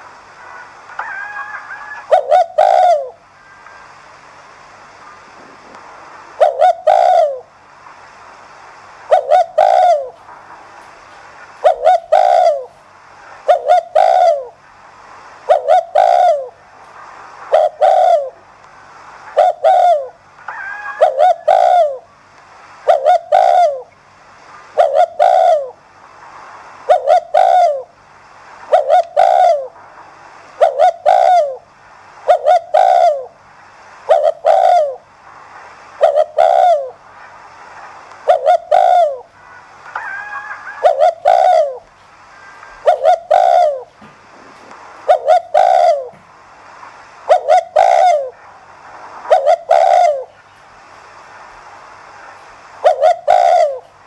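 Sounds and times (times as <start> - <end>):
dove cooing: 0.6 - 3.6, 6.4 - 7.5, 9.1 - 10.2, 11.6 - 12.8, 13.4 - 14.6, 15.4 - 16.6, 17.5 - 18.4, 19.3 - 22.1, 22.8 - 23.9, 24.7 - 25.8, 26.9 - 28.0, 28.7 - 29.8, 30.6 - 33.4, 34.1 - 35.1, 36.0 - 37.0, 38.2 - 46.2, 47.2 - 48.4, 49.3 - 50.4, 52.8 - 54.0.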